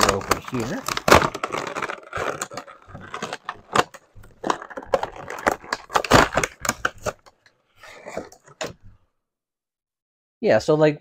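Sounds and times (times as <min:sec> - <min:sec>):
cardboard box tearing: 0:00.0 - 0:07.2.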